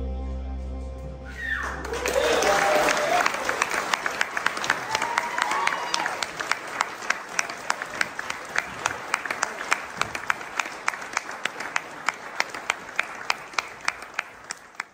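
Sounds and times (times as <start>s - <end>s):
audience applauding: 1.4s - 14.9s
hands clapping steadily close by: 2.4s - 14.9s.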